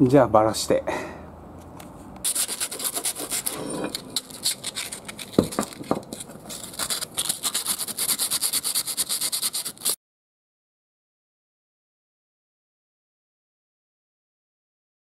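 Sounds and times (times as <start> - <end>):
sandpaper rubbing on metal: 2.2 - 10.0.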